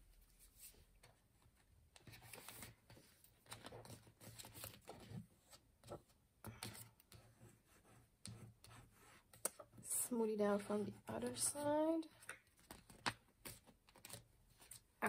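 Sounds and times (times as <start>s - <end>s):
paper planner rustling: 0.4s - 7.2s, 10.5s - 14.9s.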